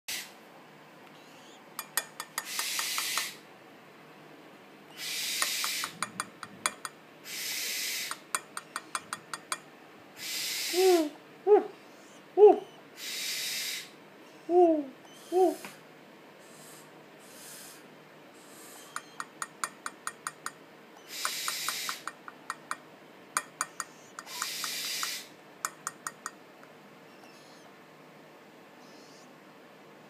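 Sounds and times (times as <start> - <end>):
owl chicks hissing: 0.1 - 0.4, 1.1 - 3.5, 4.9 - 6.4, 7.2 - 22.8, 23.4 - 26.3, 27.0 - 27.8, 28.7 - 29.4
quick sharp clicks: 1.8 - 3.4, 5.4 - 7.0, 19.0 - 20.6, 21.2 - 22.8, 23.4 - 26.4.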